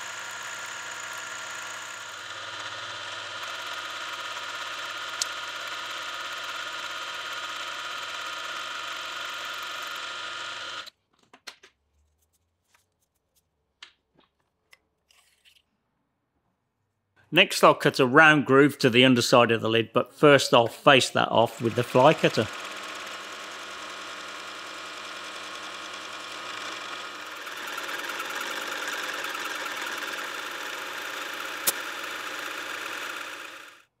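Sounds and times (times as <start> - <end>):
milling machine cutting metal: 0.0 - 10.9, 21.4 - 33.8.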